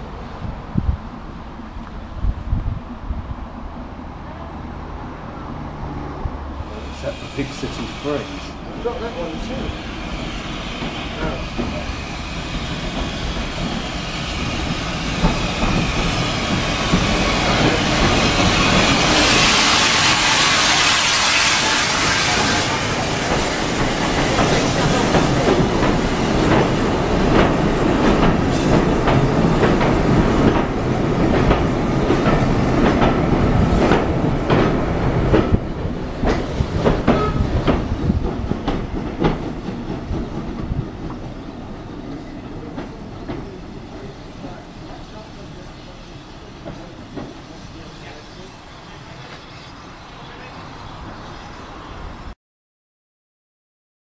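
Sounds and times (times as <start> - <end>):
steam hissing: 6.6 - 34.2, 42.1 - 52.0
steam locomotive running: 6.6 - 52.1.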